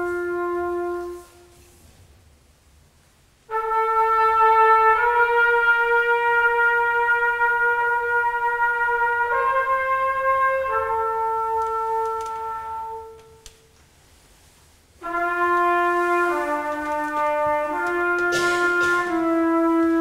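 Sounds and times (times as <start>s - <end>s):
trumpet playing long held notes: 0.0s - 1.8s, 3.5s - 13.5s, 15.0s - 20.0s.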